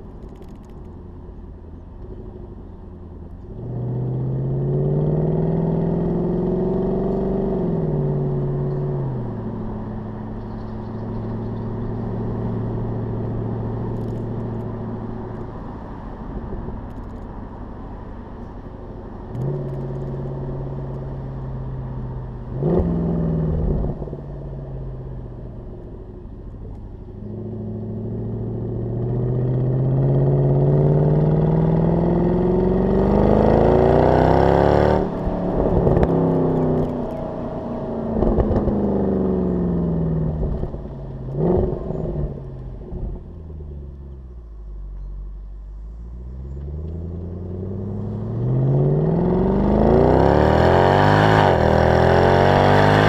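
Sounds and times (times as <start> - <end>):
car exhaust accelerating hard: 27.1 - 44.1.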